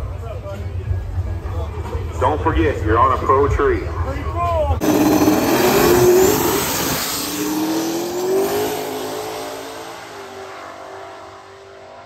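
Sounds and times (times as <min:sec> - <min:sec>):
drag car engines at full throttle: 0:03.8 - 0:12.0.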